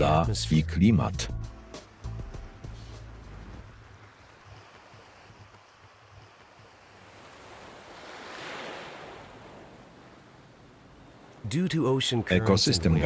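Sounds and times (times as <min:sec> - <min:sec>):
ocean wave washing: 0:01.6 - 0:13.0.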